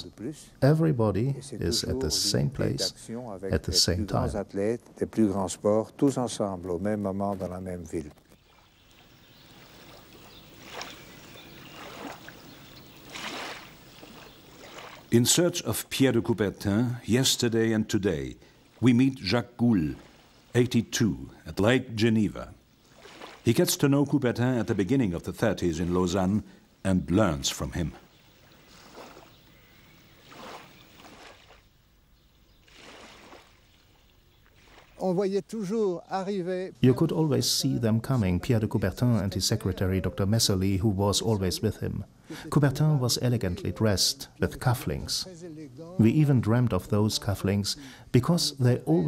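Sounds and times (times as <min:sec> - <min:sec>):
water splash: 0:08.4 - 0:15.2, 0:19.9 - 0:20.6, 0:22.8 - 0:23.7, 0:28.4 - 0:29.5, 0:30.2 - 0:31.7, 0:32.6 - 0:35.1
waves lapping on rocks: 0:08.5 - 0:15.1, 0:22.8 - 0:23.5, 0:30.2 - 0:31.6, 0:32.7 - 0:33.8.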